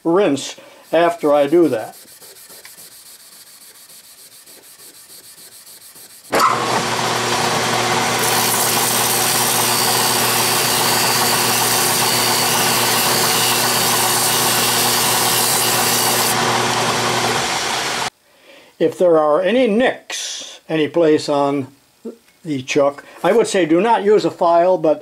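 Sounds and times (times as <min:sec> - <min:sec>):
scouring pad rubbing metal: 0:00.9 - 0:06.3
lathe motor humming: 0:06.4 - 0:18.1.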